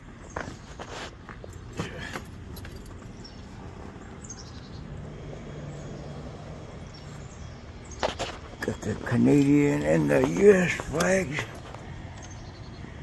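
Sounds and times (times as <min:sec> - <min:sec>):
clicks and knocks in golf cart: 0:07.9 - 0:12.6.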